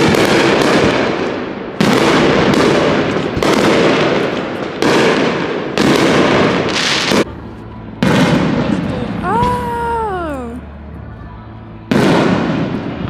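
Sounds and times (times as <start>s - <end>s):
firework shells booming: 0.0s - 7.3s.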